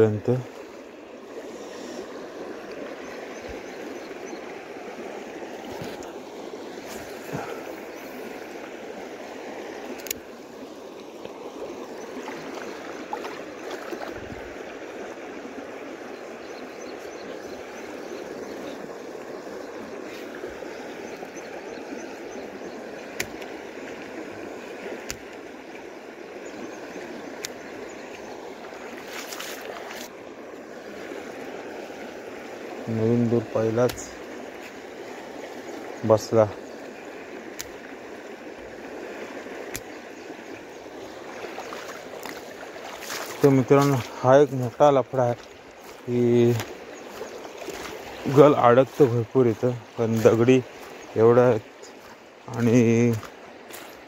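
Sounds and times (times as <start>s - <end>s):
creek water rushing: 0.0s - 54.0s
faint sharp clicks: 9.9s - 10.3s, 27.4s - 27.6s, 37.5s - 37.8s, 39.7s - 39.9s.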